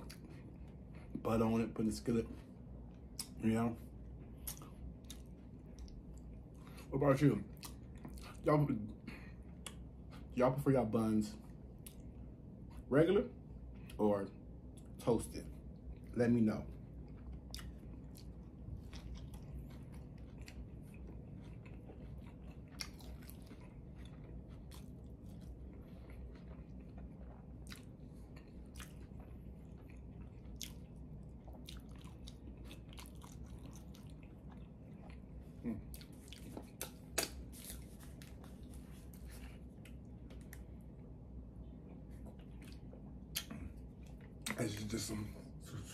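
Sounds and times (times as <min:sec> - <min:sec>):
chewing and biting food: 0:00.0 - 0:10.6, 0:14.6 - 0:45.1
low steady hum: 0:00.0 - 0:45.9
wet mouth clicks: 0:36.8 - 0:37.4.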